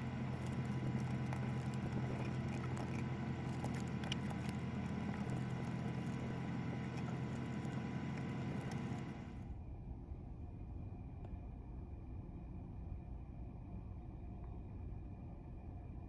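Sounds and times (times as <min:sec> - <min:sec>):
paper being creased and folded: 0:00.0 - 0:09.2
low hum of ship machinery: 0:00.0 - 0:16.0.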